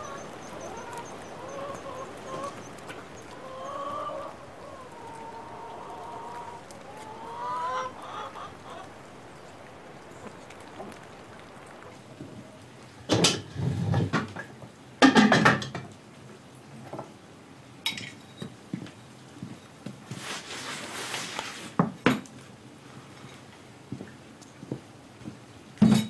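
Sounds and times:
metal pots and pans clattering: 13.1 - 15.9.

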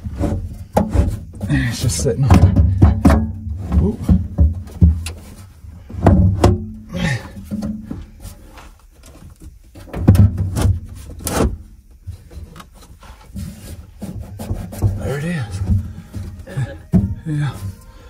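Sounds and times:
heavy metal case knocking and rubbing: 0.0 - 8.2, 9.8 - 17.6.

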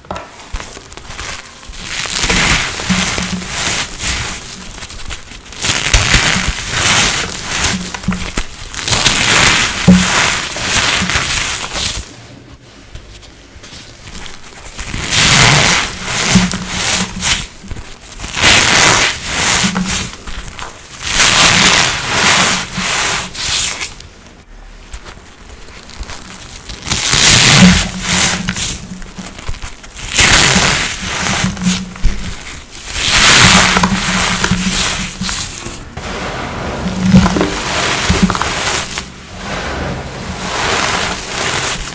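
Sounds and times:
powder blocks crunching: 0.1 - 12.1, 25.0 - 36.0, 36.6 - 41.9.

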